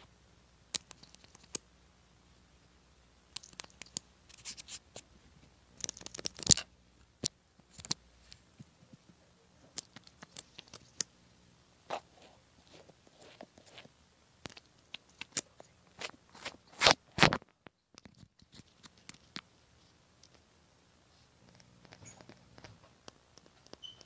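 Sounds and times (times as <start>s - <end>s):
slime clicks and crackles: 3.3s - 4.7s, 5.8s - 8.0s.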